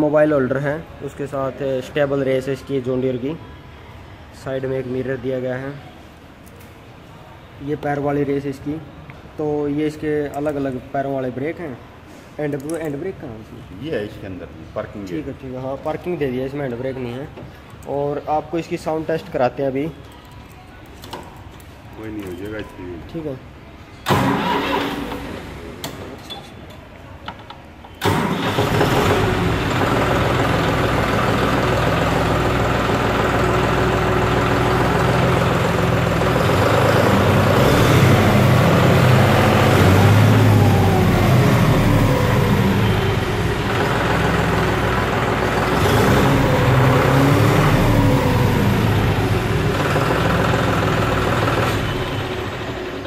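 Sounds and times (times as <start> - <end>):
tractor diesel engine revving: 24.0 - 25.8, 28.0 - 53.0.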